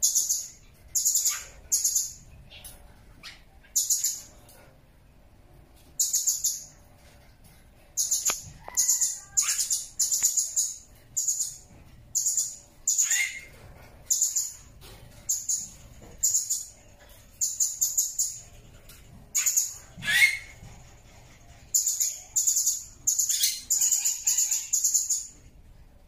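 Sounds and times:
parrot shrill chirps: 0:08.0 - 0:10.8, 0:12.3 - 0:13.5, 0:19.4 - 0:20.6.

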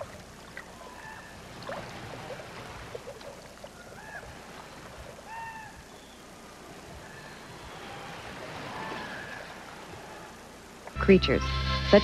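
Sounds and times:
faint water noise: 0:00.0 - 0:12.0
short bird calls: 0:05.2 - 0:06.3.

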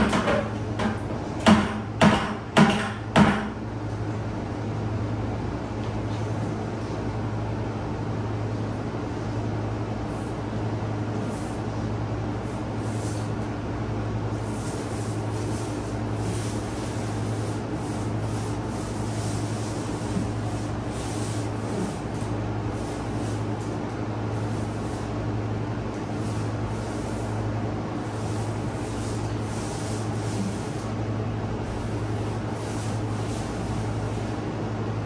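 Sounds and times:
machine running with low hum: 0:00.0 - 0:35.0.

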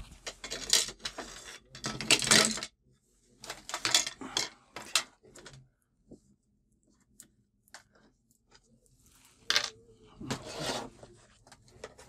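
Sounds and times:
small parts and tools clattering: 0:00.1 - 0:02.8, 0:03.4 - 0:05.6.

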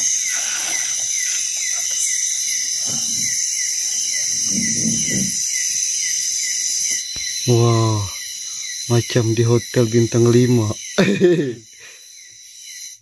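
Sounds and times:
short falling insect chirp: 0:00.0 - 0:08.8
insects buzzing: 0:00.0 - 0:13.0.

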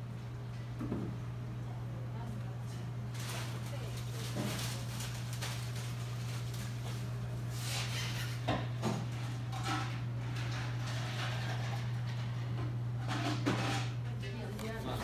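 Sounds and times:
faint clatter of dishes: 0:07.7 - 0:14.2.

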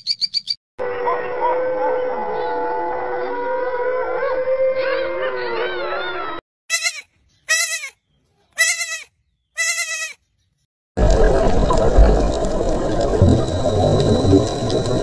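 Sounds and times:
wolves howling: 0:00.8 - 0:06.4.

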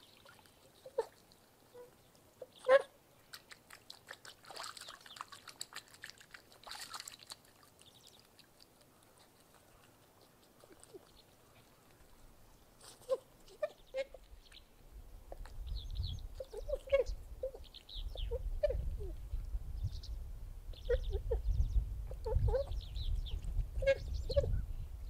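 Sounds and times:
swan splashing in water: 0:00.0 - 0:15.6
swans honking: 0:00.8 - 0:03.0
wind rumble: 0:18.0 - 0:25.0.

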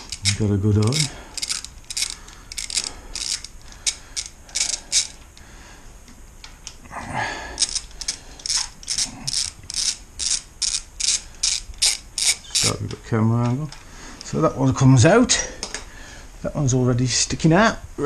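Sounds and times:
hand ratchet clicking: 0:00.0 - 0:05.4, 0:07.6 - 0:14.4.

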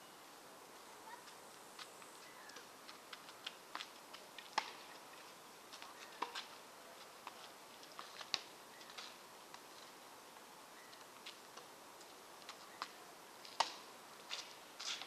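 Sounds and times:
tennis ball hitting rackets: 0:06.2 - 0:06.4.

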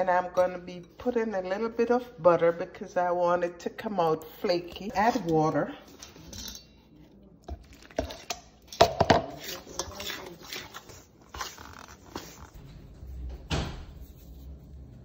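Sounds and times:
spoon scraping metal bowl: 0:04.0 - 0:06.8, 0:07.6 - 0:12.6.

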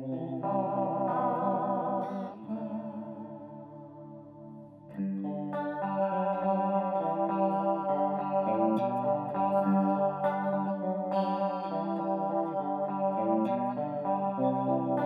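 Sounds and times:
electric guitar chords with chorus: 0:00.0 - 0:15.0.

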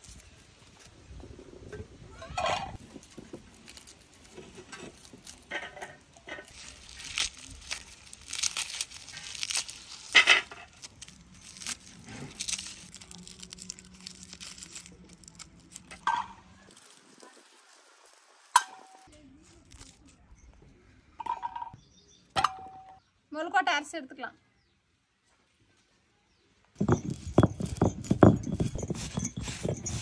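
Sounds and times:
papery garlic skins crackling: 0:02.7 - 0:20.3, 0:26.8 - 0:30.0.

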